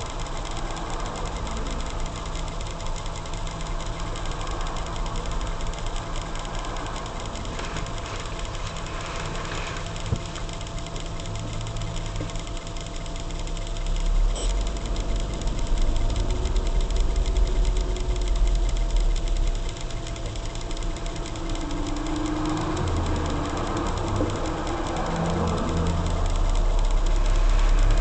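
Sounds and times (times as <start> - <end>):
car engine and road rumble: 0.0 - 28.0.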